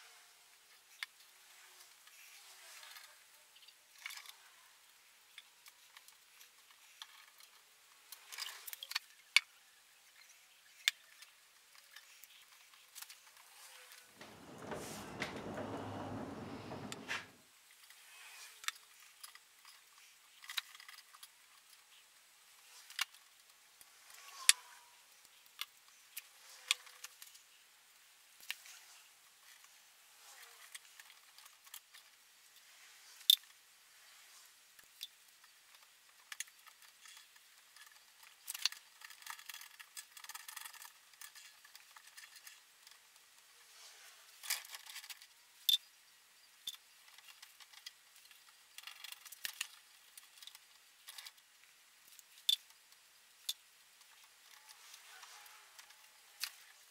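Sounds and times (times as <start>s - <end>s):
rustling and scraping: 11.8s - 17.4s, 54.0s - 56.9s.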